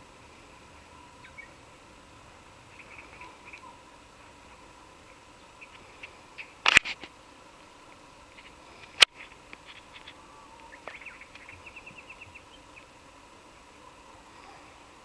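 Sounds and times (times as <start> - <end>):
birds chirping: 0.0 - 15.0
bird trill: 0.8 - 1.7, 2.7 - 3.9, 10.0 - 12.9.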